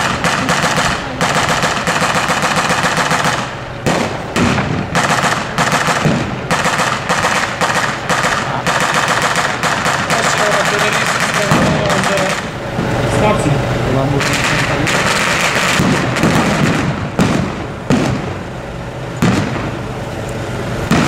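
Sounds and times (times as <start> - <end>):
machine gun firing bursts: 0.0 - 12.5, 14.2 - 18.3.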